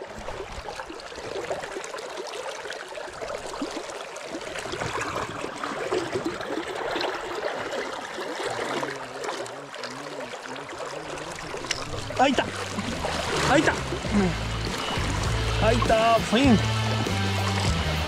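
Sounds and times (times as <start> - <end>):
river current gurgling: 0.0 - 18.0.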